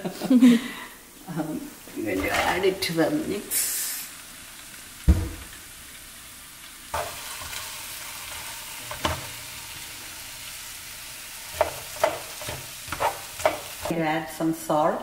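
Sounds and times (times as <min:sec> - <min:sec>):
potatoes sizzling in oil: 0:00.6 - 0:15.0
loud thump: 0:05.1 - 0:05.6.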